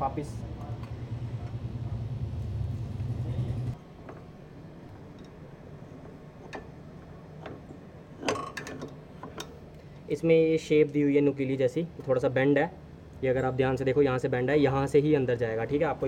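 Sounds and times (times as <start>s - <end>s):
low engine rumble: 0.0s - 3.8s.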